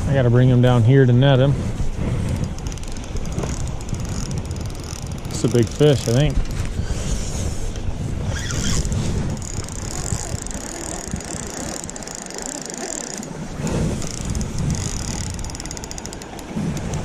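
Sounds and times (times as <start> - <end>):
wind buffeting microphone: 0.0 - 17.0
fast reel clicks: 2.2 - 6.6, 8.3 - 17.0
fishing reel drag whirring: 2.2 - 7.1, 8.2 - 17.0.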